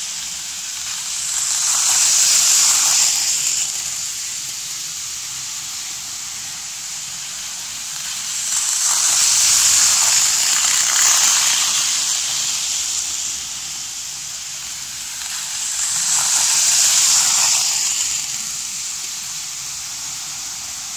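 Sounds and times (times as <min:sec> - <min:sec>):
model train whirring on rails: 0:00.0 - 0:20.9.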